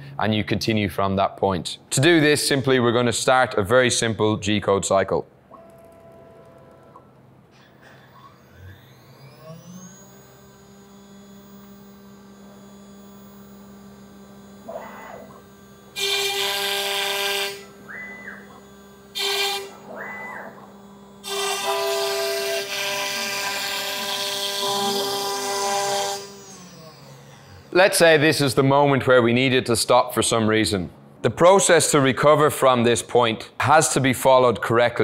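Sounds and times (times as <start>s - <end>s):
axis motors whining: 5.5s - 29.4s
router spindle running: 7.8s - 29.6s
end mill cutting plywood: 7.9s - 28.9s.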